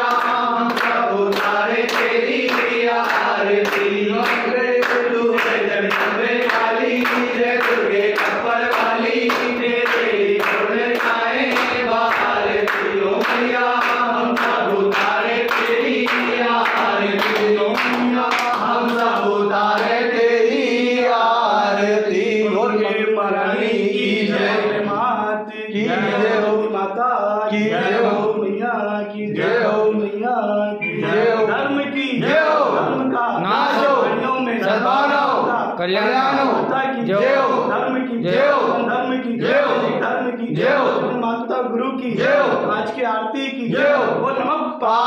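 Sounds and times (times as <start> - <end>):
hands clapping: 0.0 - 20.0
men singing a hymn in unison: 0.0 - 45.0.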